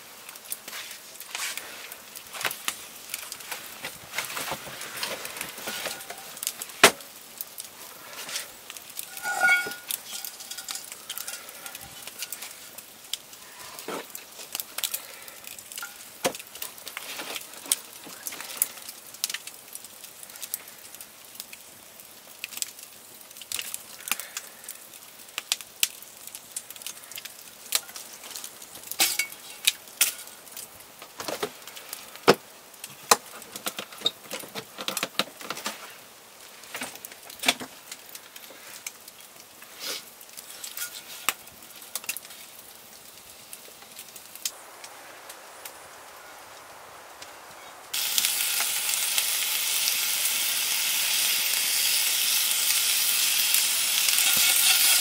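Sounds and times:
wood fire crackling and popping: 0:00.0 - 0:55.0
frying pan clinking: 0:09.1 - 0:12.3, 0:29.0 - 0:30.3.

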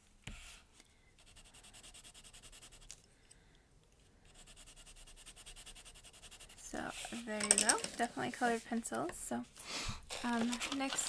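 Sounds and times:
colored pencil scratching on paper: 0:01.2 - 0:03.0, 0:04.2 - 0:07.3.

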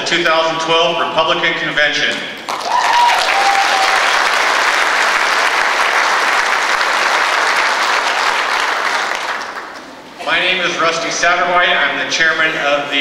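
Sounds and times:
audience applauding: 0:02.5 - 0:10.0.

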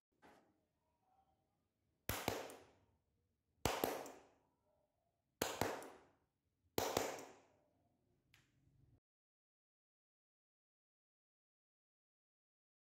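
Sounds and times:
hand claps in pairs: 0:02.1 - 0:02.7, 0:03.6 - 0:04.2, 0:05.4 - 0:06.1, 0:06.8 - 0:07.5.

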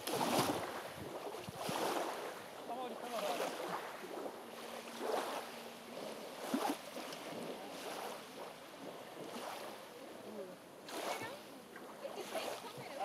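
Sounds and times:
small waves washing onto gravel: 0:00.0 - 0:10.2.

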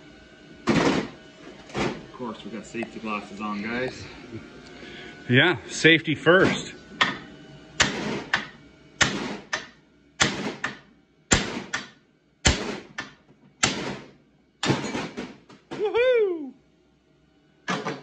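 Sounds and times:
hammer striking metal: 0:07.8 - 0:14.0.

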